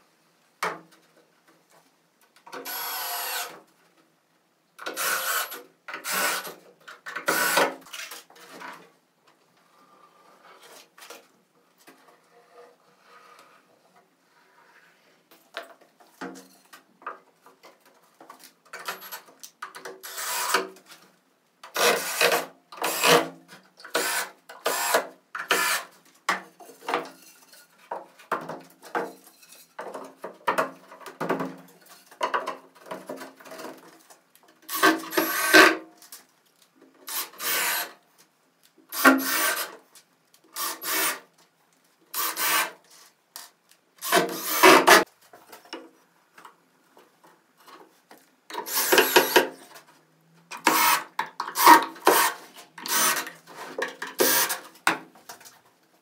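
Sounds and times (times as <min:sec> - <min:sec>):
hand tool scraping wood: 0:21.8 - 0:26.0, 0:38.9 - 0:39.8, 0:44.0 - 0:45.1, 0:50.5 - 0:55.0.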